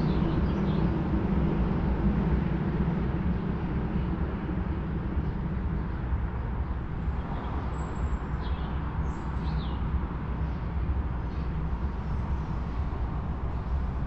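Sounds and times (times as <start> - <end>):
low rumble of urban noise: 0.0 - 14.0.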